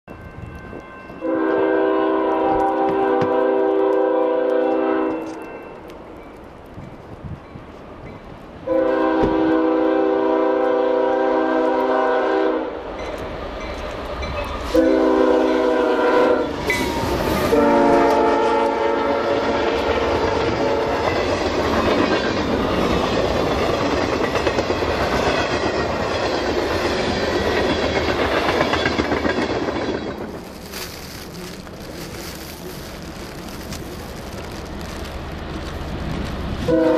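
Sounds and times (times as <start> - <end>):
freight train rumbling and clattering: 0.2 - 36.9
train air horn blasts: 1.2 - 5.4, 8.7 - 12.8, 14.7 - 21.2, 36.6 - 36.9.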